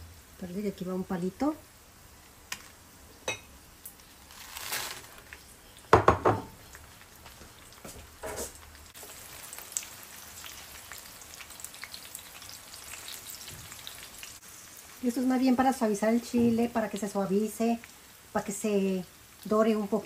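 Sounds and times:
chiles sizzling in hot oil: 0.0s - 20.0s.

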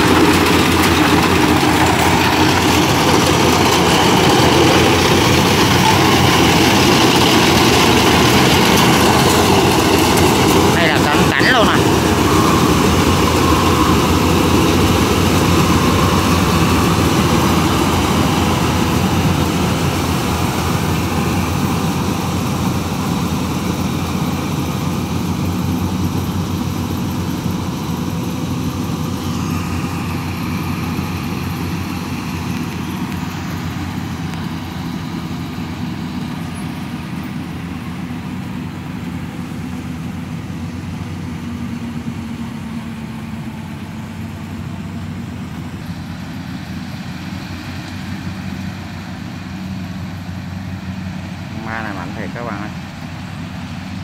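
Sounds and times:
combine harvester running: 0.0s - 54.0s.

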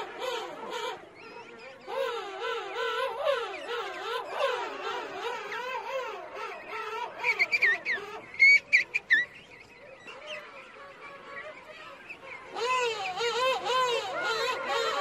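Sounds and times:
penguins braying calls: 1.9s - 9.0s, 10.3s - 15.0s.

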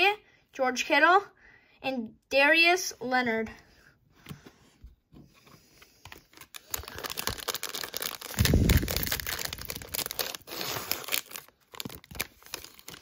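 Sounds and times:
card pack wrapper tearing and crinkling: 6.1s - 13.0s.

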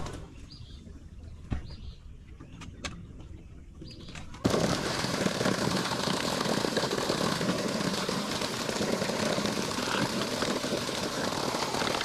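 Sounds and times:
boat engine drone: 4.5s - 12.0s.

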